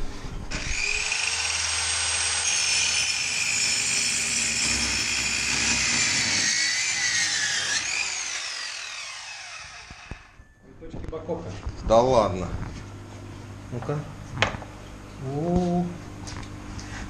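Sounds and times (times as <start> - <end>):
circular saw cutting wood: 0.5 - 10.4.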